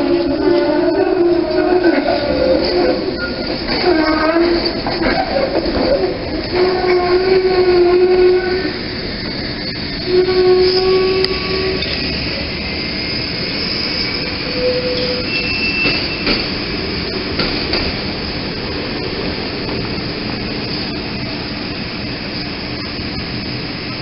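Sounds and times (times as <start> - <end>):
high wheel squeals: 0.0 - 8.9, 9.6 - 16.6
trolley rolling on track: 0.0 - 24.0.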